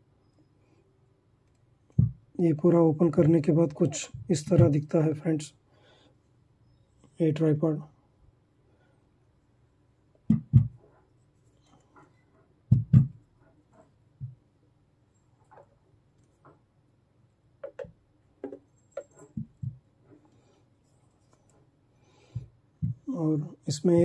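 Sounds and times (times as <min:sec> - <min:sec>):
tripod feet knocking on table: 0:02.0 - 0:02.2, 0:10.3 - 0:10.8, 0:12.7 - 0:13.2, 0:22.4 - 0:23.1
plastic clicks and taps: 0:17.6 - 0:19.8.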